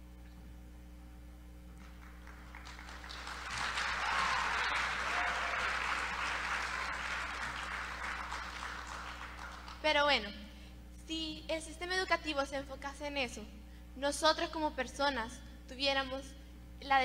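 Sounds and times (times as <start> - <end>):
audience applauding: 1.8 - 9.8.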